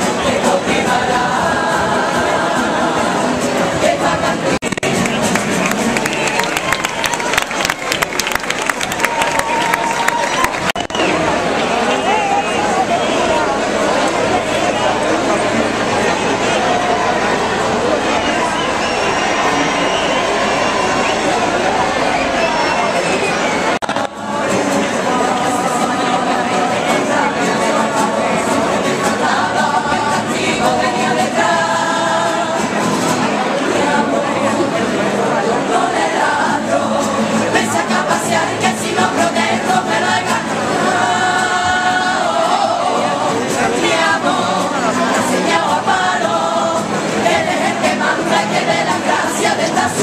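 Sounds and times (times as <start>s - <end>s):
group singing in chorus: 0.0s - 6.3s, 23.8s - 50.0s.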